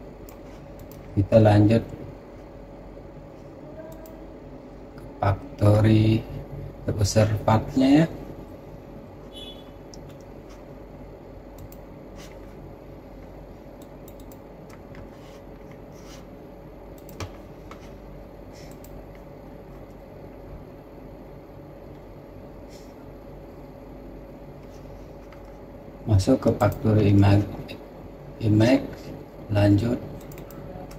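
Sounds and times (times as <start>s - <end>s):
steady low hum: 0.0s - 30.9s
computer mouse clicks: 0.2s - 1.1s, 11.6s - 12.4s, 13.8s - 16.2s, 17.0s - 17.9s, 18.6s - 19.2s, 26.4s - 26.8s, 30.2s - 30.9s.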